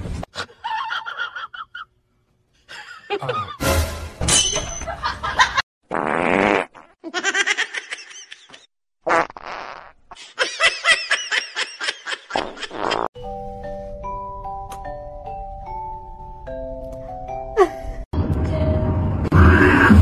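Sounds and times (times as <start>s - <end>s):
person laughing: 2.7s - 3.6s, 17.6s - 18.0s
fart sounds: 5.9s - 7.0s, 9.0s - 10.0s, 12.4s - 13.1s.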